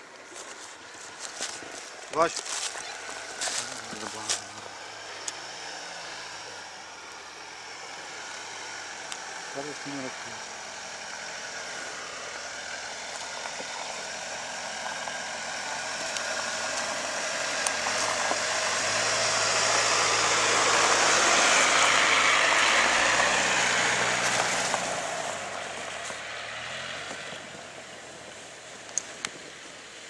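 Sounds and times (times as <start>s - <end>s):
car driving past: 2.3s - 28.6s.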